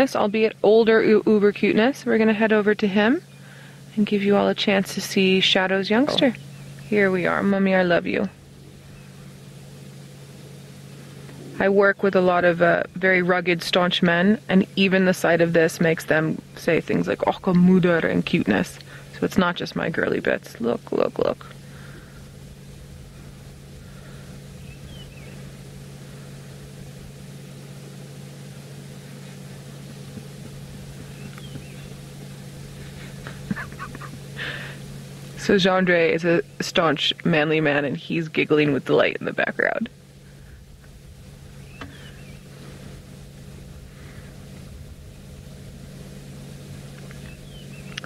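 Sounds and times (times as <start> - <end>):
low mechanical hum: 0.0 - 48.0
high bird chirp: 24.6 - 25.4, 31.1 - 32.0, 47.2 - 48.0.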